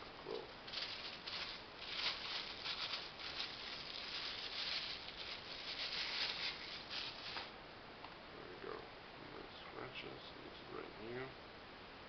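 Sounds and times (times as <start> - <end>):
plastic packaging crinkling: 0.2 - 7.5.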